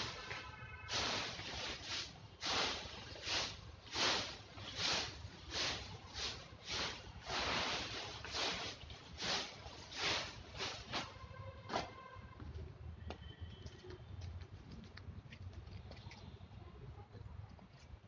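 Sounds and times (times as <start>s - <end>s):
broom sweeping leaves: 0.0s - 11.3s.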